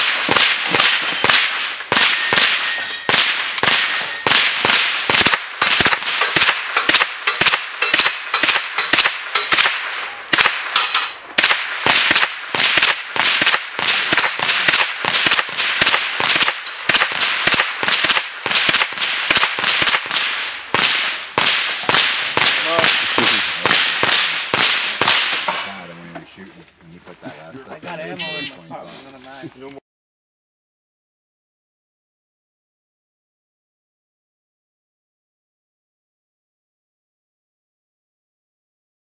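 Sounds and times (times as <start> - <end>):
rifle shots: 0.0 - 25.8.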